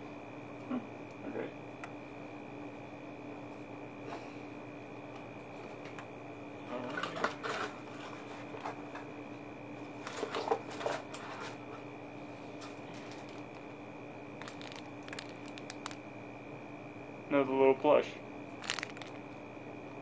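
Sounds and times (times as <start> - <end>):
faint steady hum: 0.0 - 20.0
plastic packaging crinkling: 12.8 - 13.7, 14.4 - 16.0, 18.6 - 19.3.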